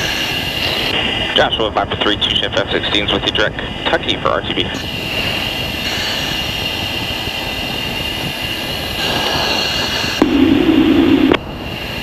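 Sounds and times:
jet cockpit hiss and whine: 0:00.0 - 0:12.0
loud low buzz: 0:04.8 - 0:11.7.

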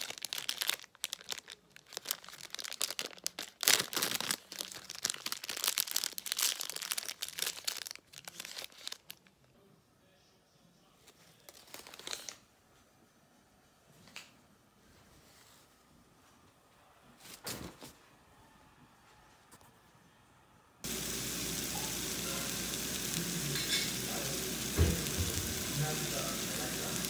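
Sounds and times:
plastic wrapper crinkling: 0:00.0 - 0:09.4, 0:11.3 - 0:12.4.

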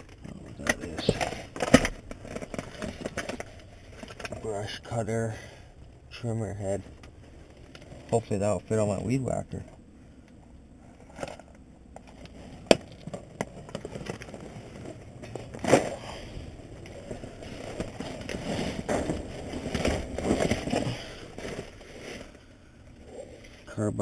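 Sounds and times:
plastic bags rustling and crinkling: 0:00.0 - 0:05.4, 0:11.0 - 0:22.7.

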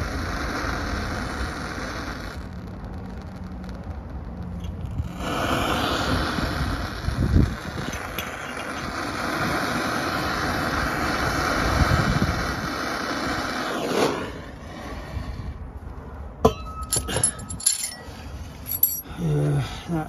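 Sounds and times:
blowtorch flame hissing: 0:00.0 - 0:15.9
sharp metallic clinks: 0:16.5 - 0:19.2.

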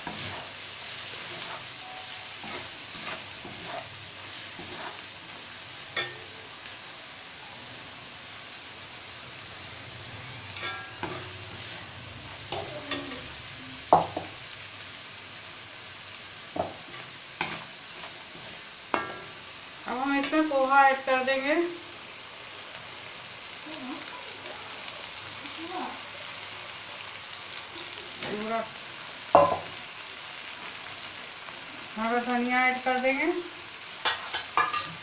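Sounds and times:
metal spatula scraping and clinking: 0:00.0 - 0:00.5, 0:01.2 - 0:05.1, 0:05.9 - 0:06.3, 0:10.5 - 0:11.8, 0:34.0 - 0:35.0
vegetables sizzling in hot oil: 0:00.0 - 0:35.0.

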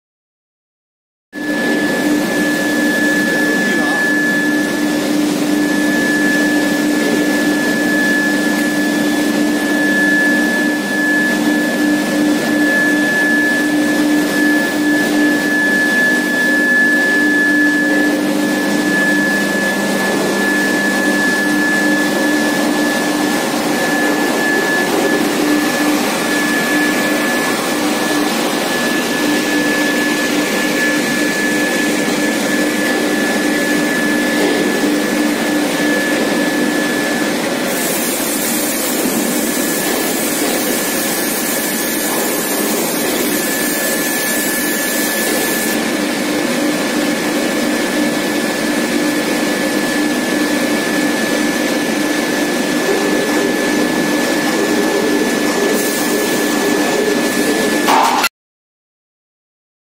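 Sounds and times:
machine whine and hum: 0:01.4 - 0:58.3
hiss: 0:37.7 - 0:45.7, 0:55.7 - 0:56.4.

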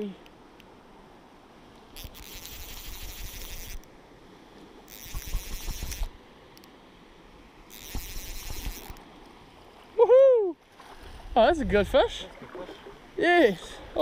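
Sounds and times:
fishing reel ratchet whirring: 0:02.0 - 0:03.9, 0:04.9 - 0:06.1, 0:07.7 - 0:09.0.

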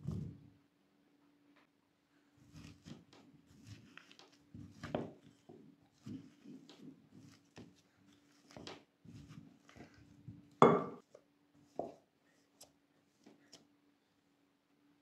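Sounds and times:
masher thudding in glass bowl: 0:10.6 - 0:11.0.

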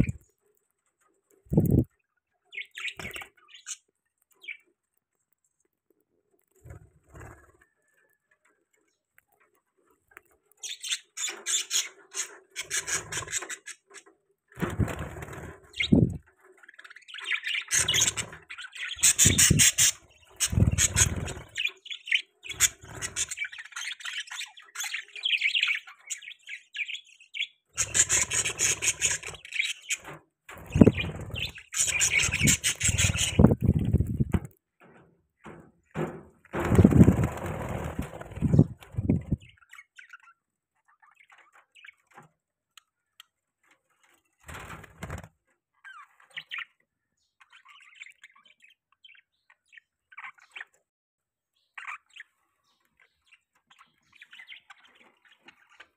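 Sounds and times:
budgerigars chirping and chattering: 0:00.0 - 0:00.3, 0:01.5 - 0:04.8, 0:09.4 - 0:34.5, 0:36.0 - 0:42.2, 0:45.8 - 0:50.9, 0:51.5 - 0:55.9.

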